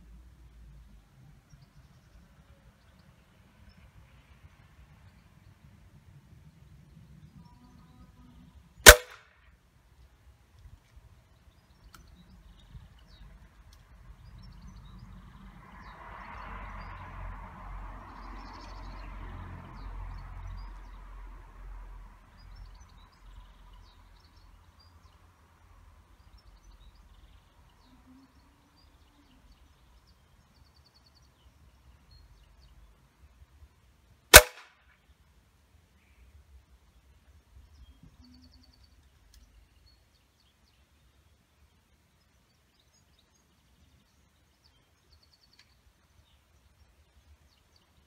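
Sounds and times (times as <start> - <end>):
faint outdoor background: 0.0 - 48.0
air rifle shot: 8.8 - 9.2, 34.3 - 34.7.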